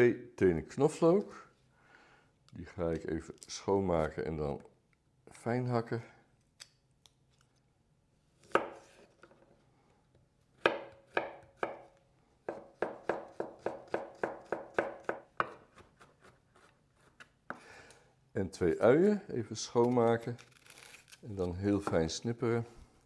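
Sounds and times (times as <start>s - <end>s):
knife chopping on wooden board: 8.5s - 8.8s, 10.6s - 16.1s.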